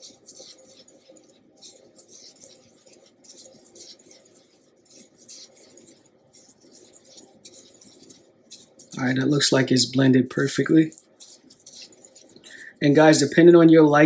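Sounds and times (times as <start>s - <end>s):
gritty swishing of spice powder: 0.0s - 14.0s.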